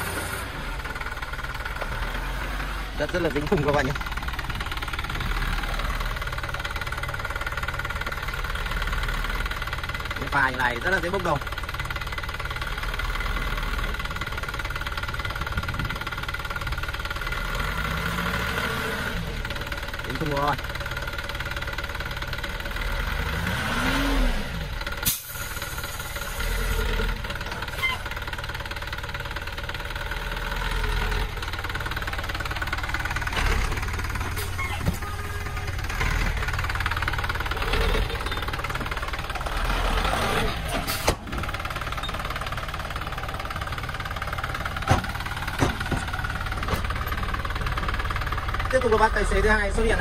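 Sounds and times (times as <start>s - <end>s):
diesel engine running: 0.0s - 50.0s.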